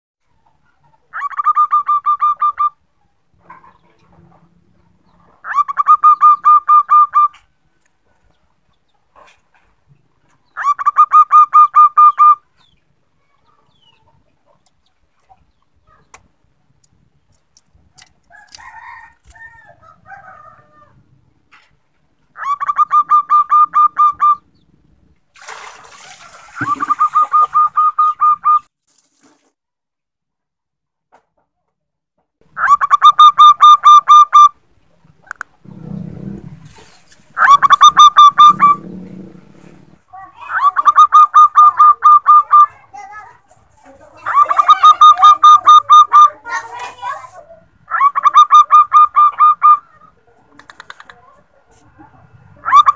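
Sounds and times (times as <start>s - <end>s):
dove cooing: 22.4s - 24.5s, 26.6s - 28.6s, 35.6s - 42.8s, 44.2s - 46.7s, 52.6s - 52.9s.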